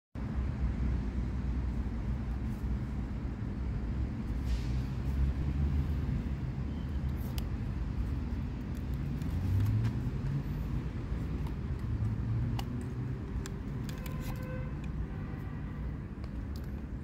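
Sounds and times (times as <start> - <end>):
snap strap clicks: 11.3 - 15.0.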